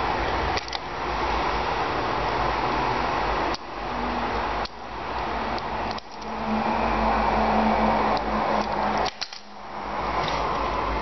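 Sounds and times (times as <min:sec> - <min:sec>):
steady rushing hiss: 0:00.0 - 0:11.0
low hum: 0:05.2 - 0:11.0.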